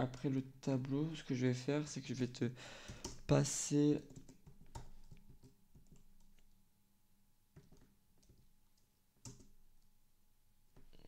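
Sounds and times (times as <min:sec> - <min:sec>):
keyboard typing: 0:02.9 - 0:03.3, 0:04.0 - 0:06.6, 0:07.6 - 0:08.5, 0:09.2 - 0:09.6.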